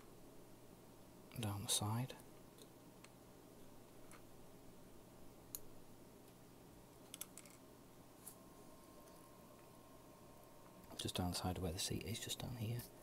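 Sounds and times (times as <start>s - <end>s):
small plastic parts clicking: 7.0s - 7.6s.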